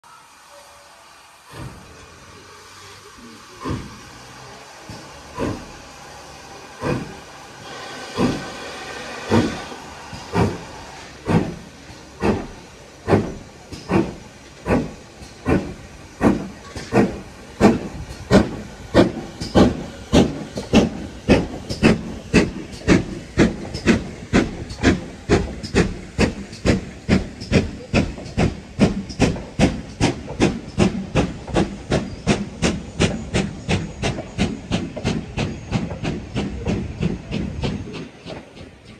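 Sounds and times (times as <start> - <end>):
steam hissing: 0.0 - 38.9
steam engine exhaust chuffing: 0.3 - 38.9.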